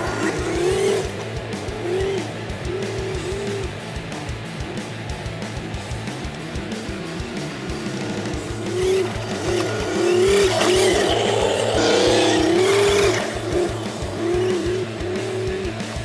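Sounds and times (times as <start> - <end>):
simulated engine revving: 0.0 - 16.0
tyres rushing over dirt: 7.2 - 16.0.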